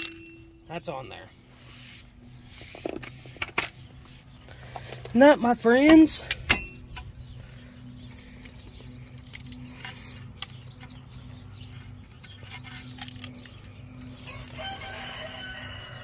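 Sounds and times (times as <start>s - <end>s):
low steady hum: 0.0s - 16.0s
rooster crowing: 14.2s - 16.0s.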